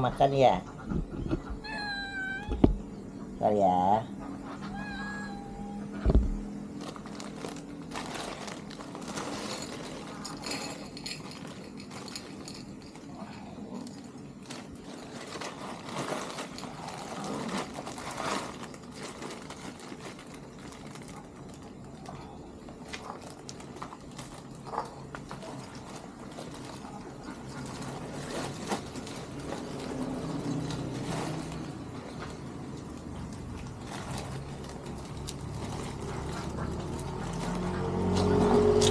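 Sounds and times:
low thump: 0:06.0 - 0:06.5.

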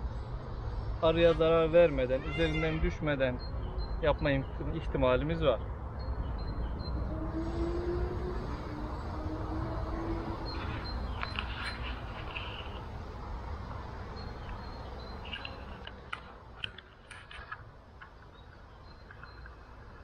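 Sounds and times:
wooden hive frames clicking and scraping: 0:14.4 - 0:20.0.

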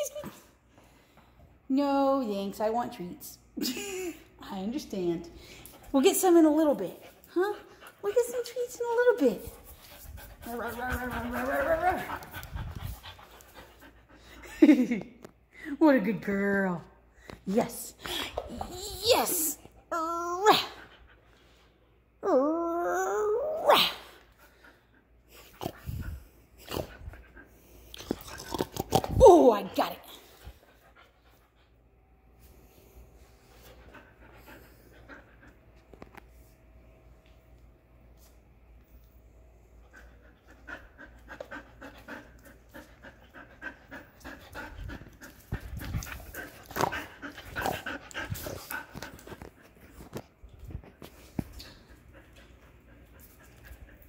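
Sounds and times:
dog breathing and mouthing: 0:09.2 - 0:14.5, 0:39.9 - 0:54.0.

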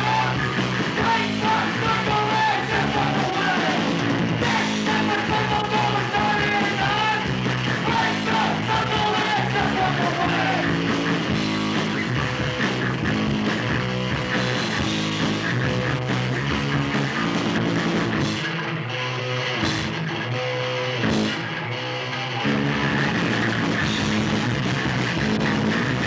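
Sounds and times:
shouted vocals: 0:00.0 - 0:10.8
punk band playing: 0:00.0 - 0:26.0.

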